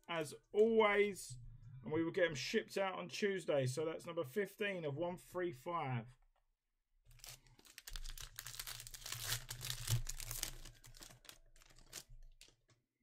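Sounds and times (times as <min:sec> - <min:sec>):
plastic wrapper tearing and crinkling: 0:07.1 - 0:12.8.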